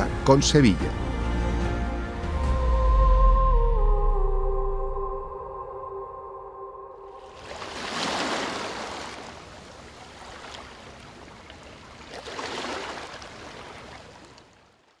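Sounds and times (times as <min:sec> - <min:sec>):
ocean waves breaking: 0:07.1 - 0:15.0.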